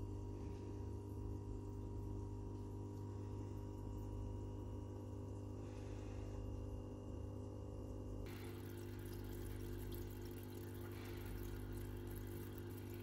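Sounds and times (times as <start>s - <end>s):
aquarium filter bubbling: 0.0s - 13.0s
air pump humming: 8.2s - 13.0s.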